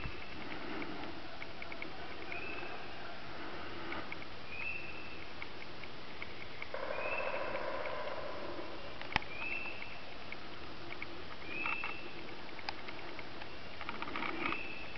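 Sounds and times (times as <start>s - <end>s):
turkey gobbling: 6.7s - 9.8s.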